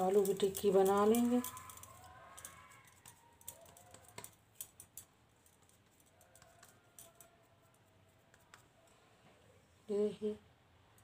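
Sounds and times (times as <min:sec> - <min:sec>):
hands pressing mashed potato: 0:00.0 - 0:05.0.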